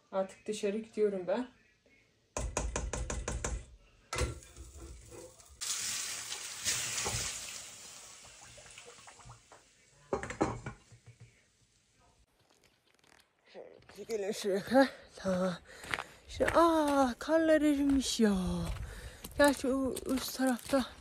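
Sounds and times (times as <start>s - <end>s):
running water: 4.4s - 10.3s
ladle tapping metal pot: 10.1s - 11.1s
glass lid clattering on pot: 10.2s - 10.9s.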